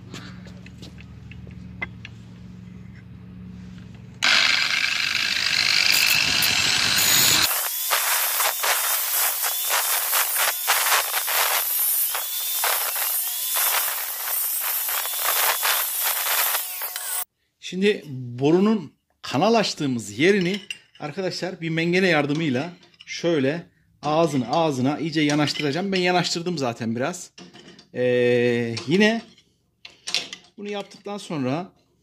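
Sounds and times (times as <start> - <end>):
angle grinder cutting metal tube: 4.2 - 17.3.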